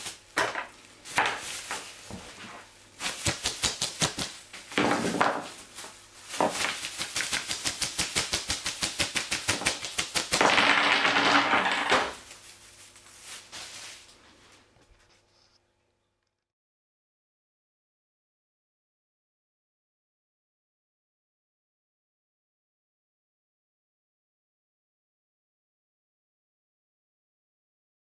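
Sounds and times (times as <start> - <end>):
plastic bag rustling: 0.0 - 15.3
grains clicking onto tabletop: 6.4 - 12.3.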